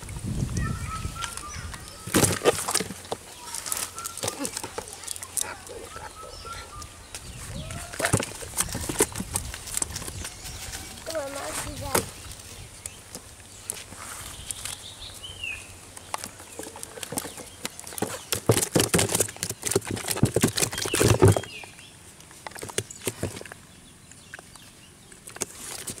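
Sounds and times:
fish flapping in plastic bucket: 1.2 - 6.0, 7.7 - 12.4, 16.0 - 21.7, 22.3 - 23.7, 25.2 - 26.0.

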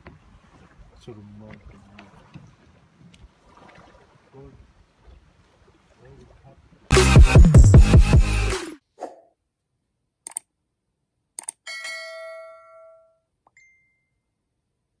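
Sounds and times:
sharp clicks: 10.2 - 10.5, 11.4 - 11.6
bell chime: 11.7 - 14.3
short high ding: 11.7 - 14.3.

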